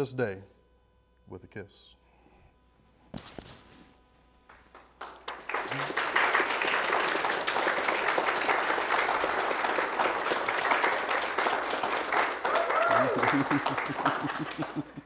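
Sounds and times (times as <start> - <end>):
audience applauding: 4.5 - 15.0.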